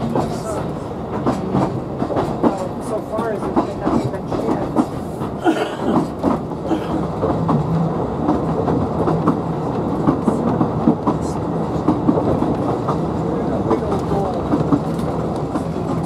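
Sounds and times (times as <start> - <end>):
train rumbling on track: 0.0 - 16.0
wheels clicking on rails: 0.0 - 16.0.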